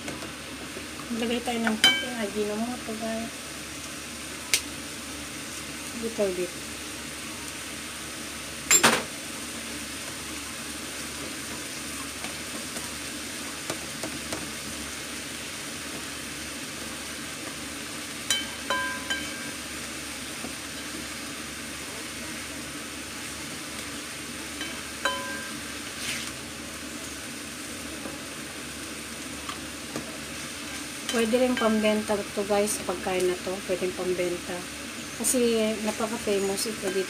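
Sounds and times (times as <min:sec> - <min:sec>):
meat sizzling in a frying pan: 0:00.0 - 0:37.0
ringing clinks from pan: 0:08.7 - 0:09.0, 0:18.3 - 0:19.6, 0:24.6 - 0:25.6.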